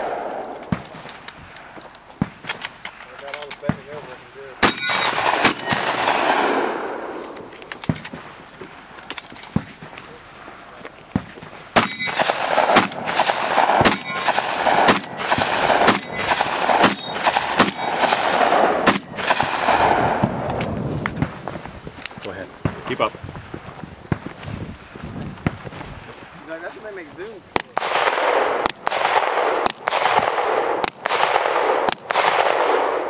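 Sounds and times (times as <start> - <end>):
shotgun shots: 3.4 - 7.1, 11.1 - 21.4, 27.5 - 33.0
ring of struck steel: 11.8 - 12.3.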